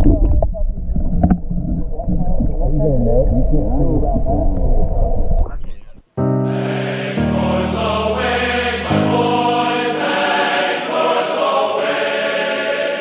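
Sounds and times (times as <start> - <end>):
background music with sustained chords: 6.2 - 13.0.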